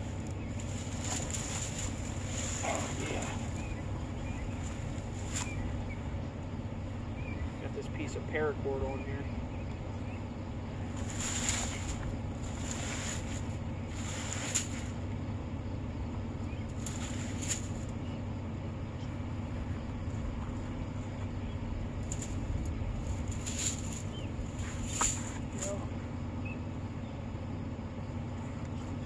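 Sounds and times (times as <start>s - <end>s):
vehicle engine running: 0.0s - 29.0s.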